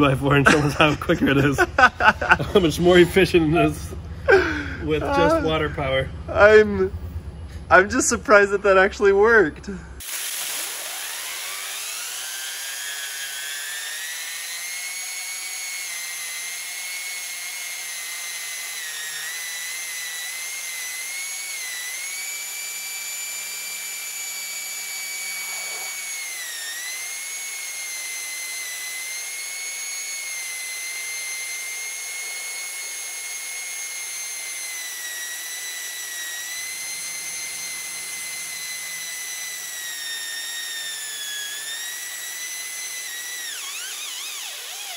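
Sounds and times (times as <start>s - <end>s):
high-pitched chainsaw whine: 0.0s - 8.8s, 9.9s - 44.9s
water jet hissing: 10.0s - 11.5s.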